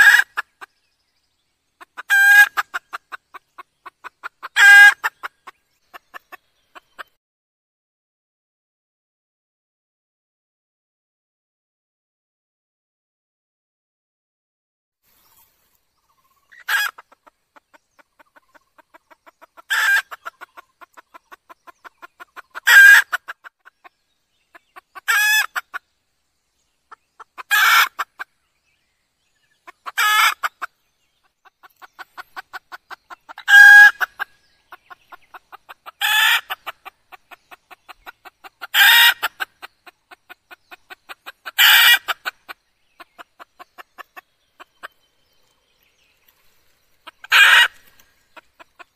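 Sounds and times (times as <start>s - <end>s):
hen clucking calls: 0.0s - 0.7s, 1.8s - 7.2s, 16.0s - 25.9s, 26.8s - 28.4s, 29.5s - 45.6s, 46.9s - 48.9s.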